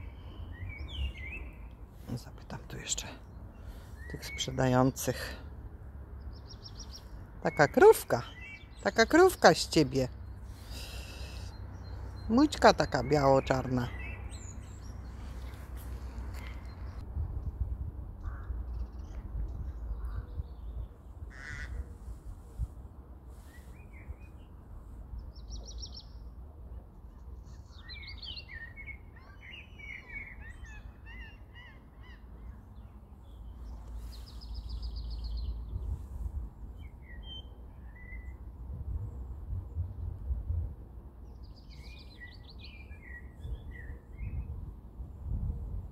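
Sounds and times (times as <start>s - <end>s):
birds chirping: 0.0s - 5.5s, 6.2s - 17.0s.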